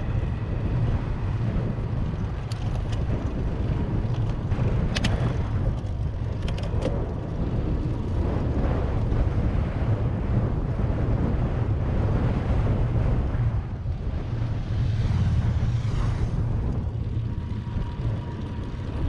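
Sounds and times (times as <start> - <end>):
tyre noise on asphalt: 0.0 - 11.0
wind buffeting microphone: 0.0 - 19.0.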